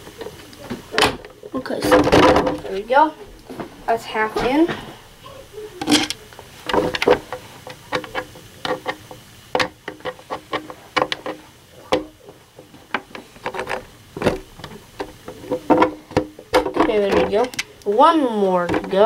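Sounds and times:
plastic clicks and knocks: 5.8s - 17.7s.

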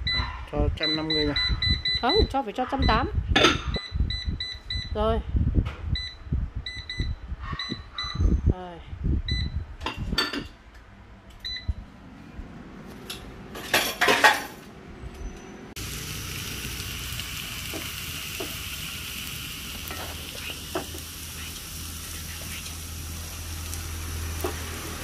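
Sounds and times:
pan and utensils clattering: 13.0s - 14.6s
steady hiss: 15.8s - 24.4s.

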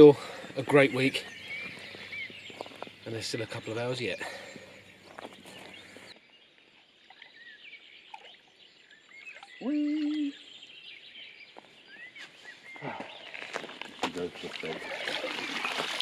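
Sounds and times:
small birds chirping: 0.0s - 16.0s
low rising bird call: 9.4s - 10.7s.

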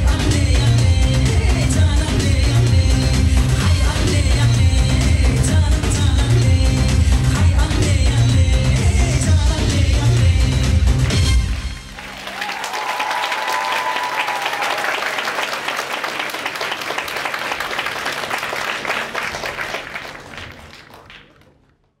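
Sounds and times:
performance music: 0.0s - 21.6s
audience applause: 11.4s - 21.9s
high call from crowd: 12.0s - 17.1s.

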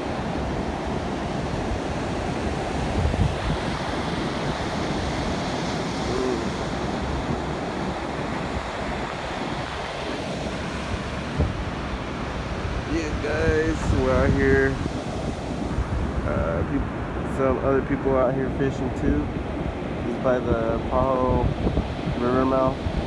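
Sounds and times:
ocean surf breaking on beach: 0.0s - 23.0s
wind buffeting microphone: 0.0s - 23.0s.

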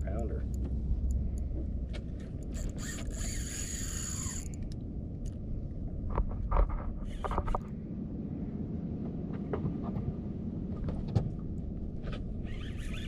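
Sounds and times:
fishing reel ratchet buzzing: 2.5s - 4.7s.

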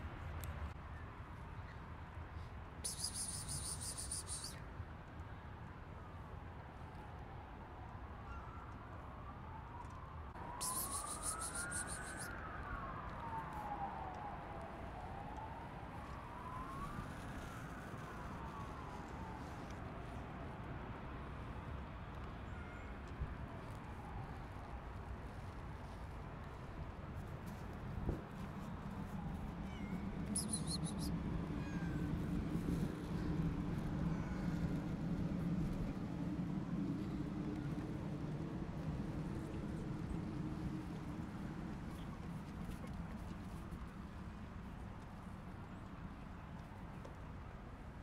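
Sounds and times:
distant siren wailing: 2.8s - 4.5s, 7.0s - 21.8s, 23.6s - 43.8s
cats meowing faintly: 29.0s - 36.0s.

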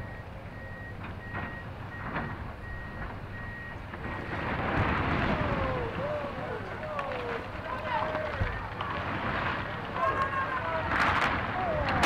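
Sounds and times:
backup alarm beeping: 0.0s - 4.6s
excavator engine running: 0.0s - 12.0s
crumbling brick rushing noise: 3.8s - 12.0s.

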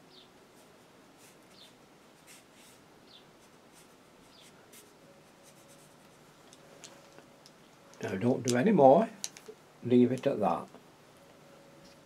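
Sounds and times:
paintbrush strokes on paper: 0.5s - 6.4s.

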